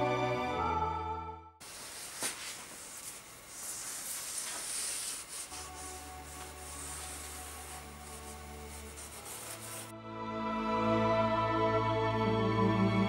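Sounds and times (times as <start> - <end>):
hand tool scraping polystyrene: 1.6 - 9.9.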